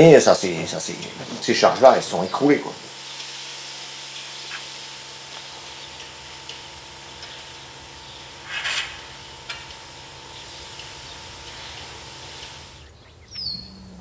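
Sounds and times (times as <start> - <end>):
tool scraping feed along floor: 0.0 - 12.9
steady machine hum: 0.0 - 14.0
falling bird chirp: 12.8 - 14.0.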